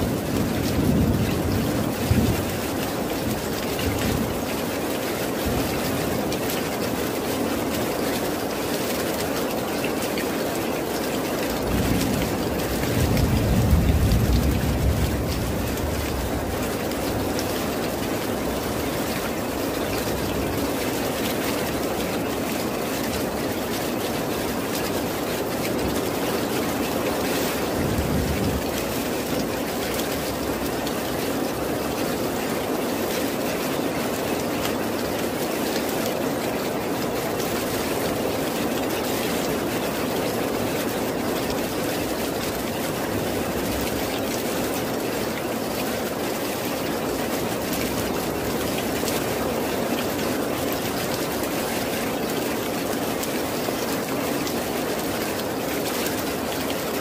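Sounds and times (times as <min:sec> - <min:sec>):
steady rain hiss: 0:00.0 - 0:57.0
distant thunder rumble: 0:11.6 - 0:20.5, 0:27.5 - 0:30.8.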